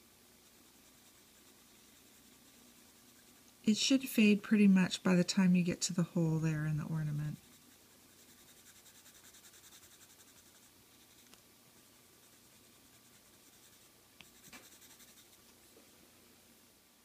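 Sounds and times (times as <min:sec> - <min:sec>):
pencil scratching: 0:00.4 - 0:03.5, 0:07.1 - 0:11.3, 0:12.2 - 0:15.4.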